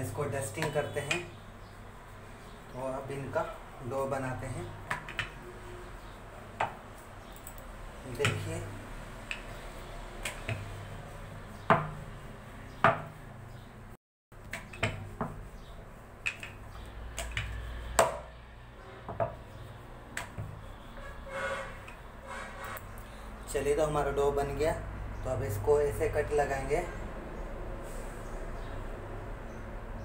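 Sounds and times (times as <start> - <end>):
rolling pin knocking on board: 11.7 - 12.0, 12.8 - 13.1.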